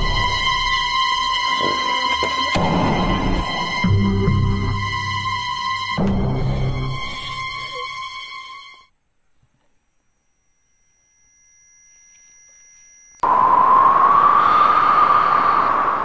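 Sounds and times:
high-pitched ringing tone: 9.8 - 13.4.

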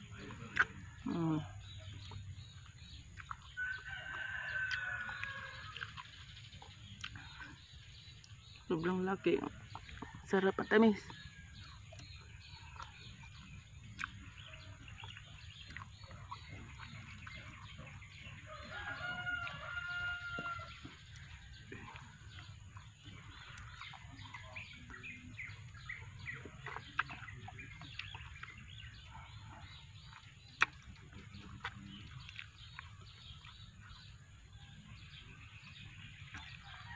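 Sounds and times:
mouth clicks and smacks eating: 0.0 - 18.7, 19.3 - 36.8
rooster crowing: 3.6 - 5.8, 18.4 - 20.8.

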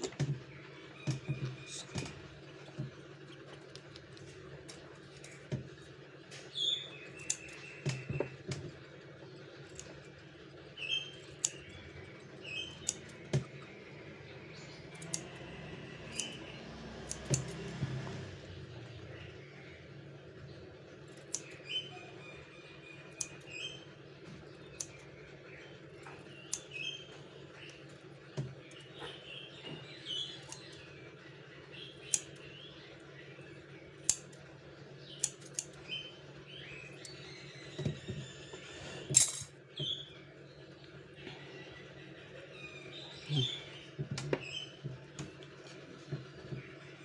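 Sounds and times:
low steady hum: 0.0 - 47.0
scissors clipping claws: 15.0 - 15.3, 16.1 - 17.7.

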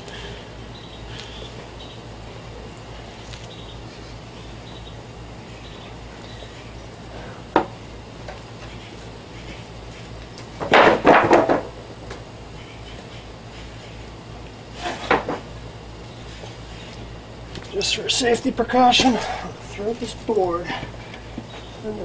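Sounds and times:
steady background noise: 0.0 - 22.0
loud knocks and clatters: 10.6 - 11.7.

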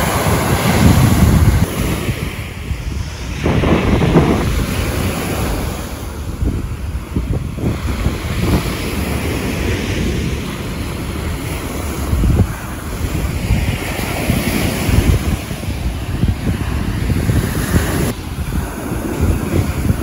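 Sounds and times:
waves washing up shore: 0.0 - 20.0
wind rumbling on microphone: 0.0 - 20.0.

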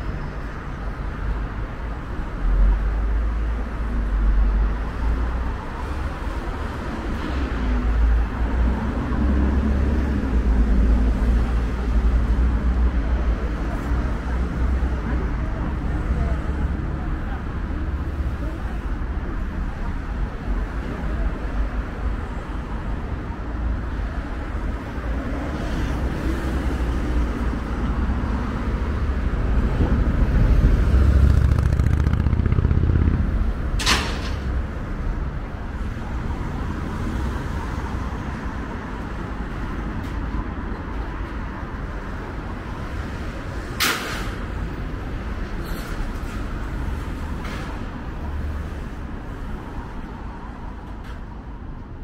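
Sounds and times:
road traffic: 0.0 - 52.0
large vehicle rumbling past: 26.8 - 35.3.

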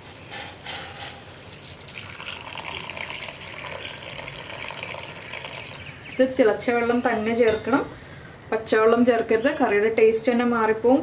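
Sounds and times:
water pouring into a pot: 1.2 - 5.9.

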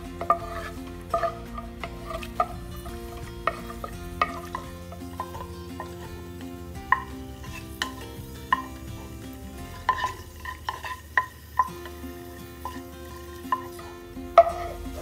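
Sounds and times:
nuts sizzling in oil: 0.0 - 15.0
soft background music: 0.0 - 15.0
wooden spatula knocking on pot: 0.2 - 6.0, 6.9 - 9.1.

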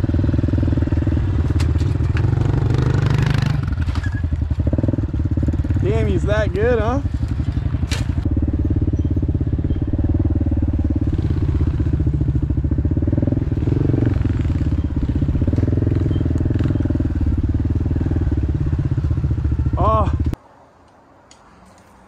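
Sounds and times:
dirt bike engine running: 0.0 - 20.4.

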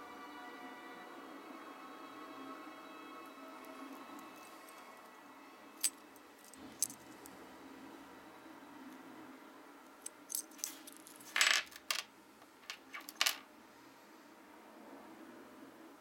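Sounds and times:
metal jewellery clinking on wood: 5.8 - 7.0, 10.1 - 12.0, 12.6 - 13.4.

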